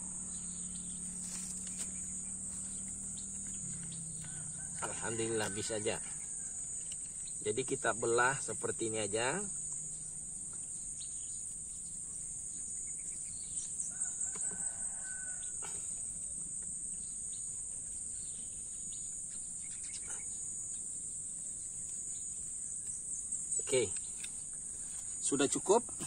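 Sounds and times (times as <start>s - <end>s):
high-pitched insect chirring: 0.0s - 25.9s
distant rooster crowing: 1.6s - 7.1s, 13.6s - 16.3s.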